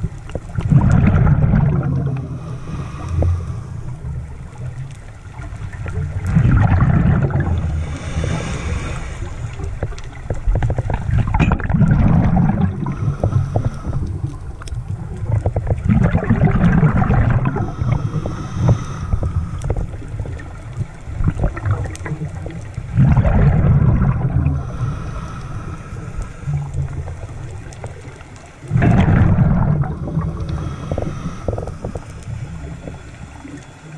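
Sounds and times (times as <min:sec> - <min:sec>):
regulator exhalation bubbling: 0:00.6 - 0:03.8, 0:06.3 - 0:14.3, 0:15.2 - 0:20.4, 0:22.9 - 0:27.0, 0:28.7 - 0:33.0
faint hiss: 0:07.5 - 0:10.2, 0:17.4 - 0:20.6, 0:24.1 - 0:28.7, 0:29.8 - 0:33.9.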